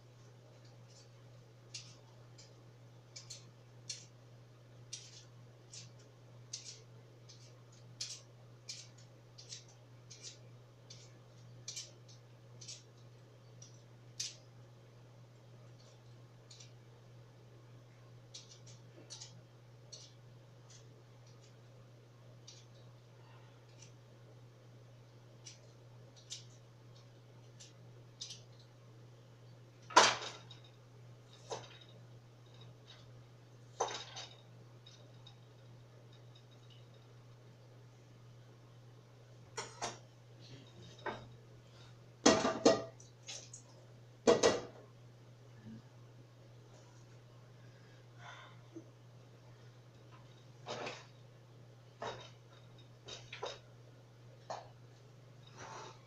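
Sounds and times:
steady low hum: 0:00.0 - 0:56.0
utensils clicking and tapping: 0:00.6 - 0:04.2, 0:04.9 - 0:14.4, 0:18.3 - 0:21.6.

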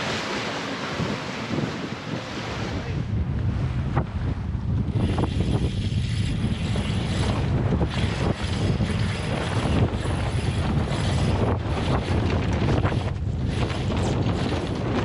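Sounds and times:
sail flapping: 0:00.0 - 0:15.0
wind buffeting microphone: 0:00.0 - 0:15.0
sail and rigging cracks and rattles: 0:04.8 - 0:15.0.

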